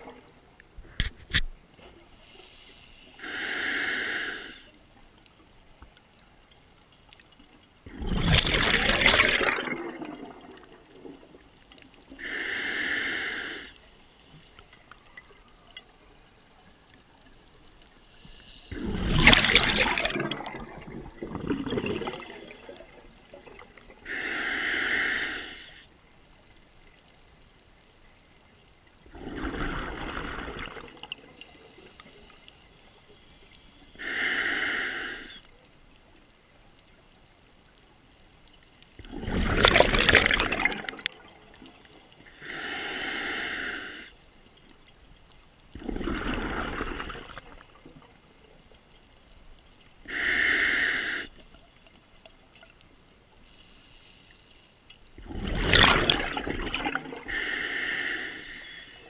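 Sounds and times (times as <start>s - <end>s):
regulator hiss on inhale: 2.1s - 5.1s, 12.1s - 14.7s, 17.8s - 19.4s, 24.0s - 26.0s, 31.2s - 35.5s, 42.0s - 44.3s, 49.8s - 51.6s, 53.4s - 55.0s, 57.2s - 59.0s
rush of exhaled bubbles: 7.9s - 11.5s, 18.7s - 25.6s, 29.1s - 32.1s, 39.0s - 43.8s, 45.7s - 48.2s, 55.2s - 59.0s.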